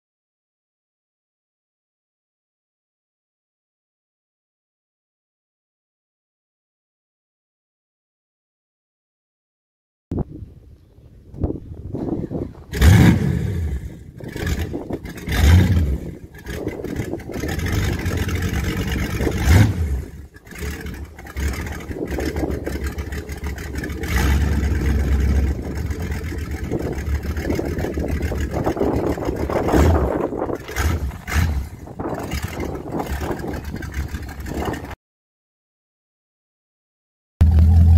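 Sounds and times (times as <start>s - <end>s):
boat engine idling and revving: 12.6s - 35.0s, 37.4s - 37.9s.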